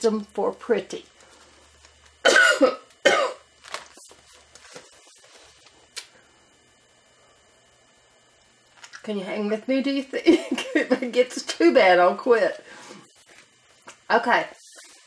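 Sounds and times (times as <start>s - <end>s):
woman coughing hoarsely: 2.2s - 3.5s.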